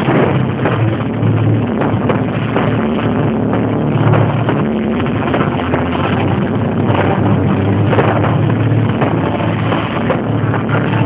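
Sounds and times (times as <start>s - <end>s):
fireworks bangs and crackling: 0.0s - 11.0s
music: 0.0s - 11.0s.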